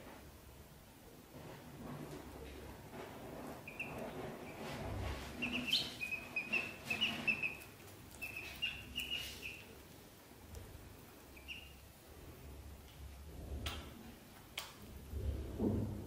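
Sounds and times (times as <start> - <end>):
rustling against wicker basket: 1.3 - 14.3
ducklings peeping: 3.5 - 10.0, 11.2 - 12.0.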